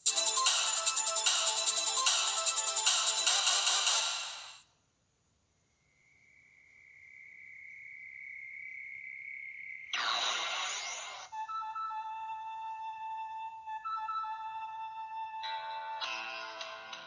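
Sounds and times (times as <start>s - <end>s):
theme music: 0.1s - 4.5s
steady high-pitched tone: 10.0s - 11.4s.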